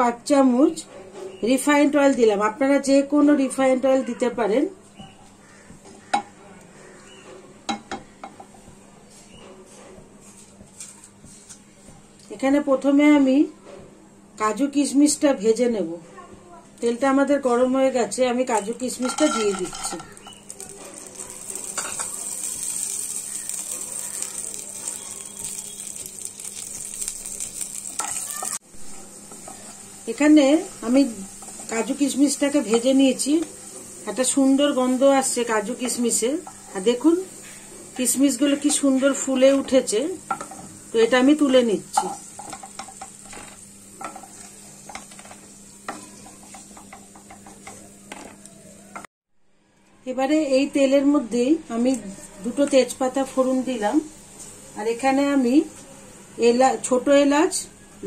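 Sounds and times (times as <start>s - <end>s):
wood tapping on pan: 5.7s - 6.4s, 7.7s - 8.5s, 35.8s - 36.6s, 38.0s - 40.7s, 42.0s - 48.4s
nuts sizzling in oil: 18.3s - 49.1s, 50.4s - 57.6s.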